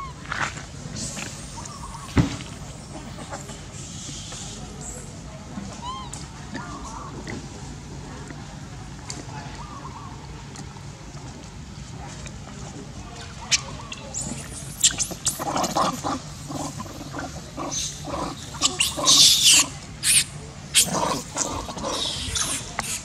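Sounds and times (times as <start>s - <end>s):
harsh monkey call: 13.5s - 23.0s
monkey grunting calls: 13.5s - 23.0s.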